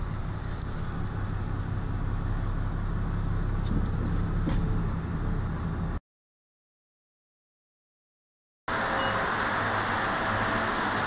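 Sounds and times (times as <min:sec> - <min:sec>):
vehicle engine humming from cabin: 0:00.0 - 0:06.0, 0:08.7 - 0:11.0.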